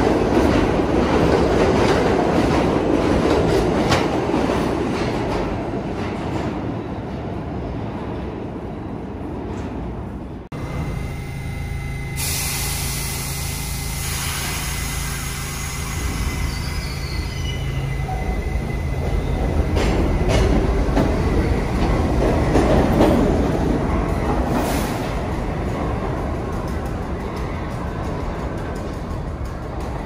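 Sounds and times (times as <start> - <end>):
subway train motor hum: 10.5 - 30.0
metallic wheel squeal: 13.9 - 19.4.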